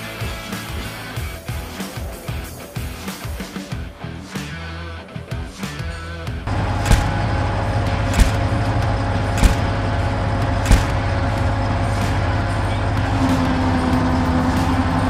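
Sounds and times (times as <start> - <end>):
low engine rumble: 6.4 - 15.0
steady hum: 6.5 - 12.9
sharp knocks: 6.8 - 7.3, 8.1 - 8.6, 9.4 - 9.8, 10.6 - 11.2.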